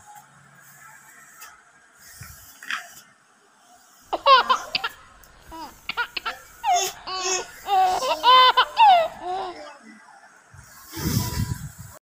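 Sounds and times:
girl giggling: 4.2s - 4.9s.

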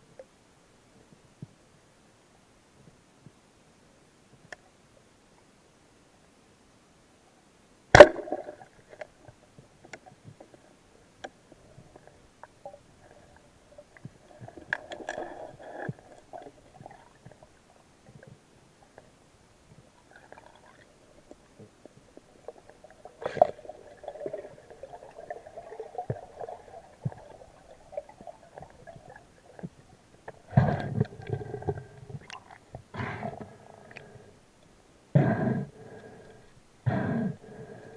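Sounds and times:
underwater gurgling and rumbling: 8.0s - 34.5s.

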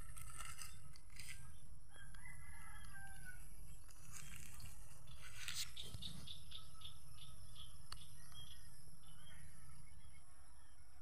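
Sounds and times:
rooster crowing: 1.9s - 3.5s.

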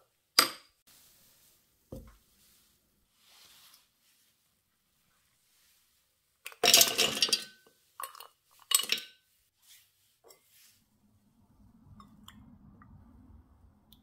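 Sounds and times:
dishes and utensils clattering: 6.5s - 9.2s.

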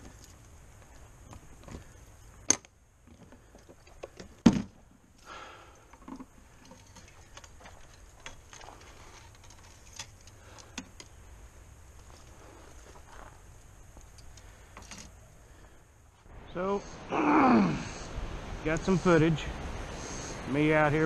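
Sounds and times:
fishing rod clicks and rattles: 5.9s - 11.2s.

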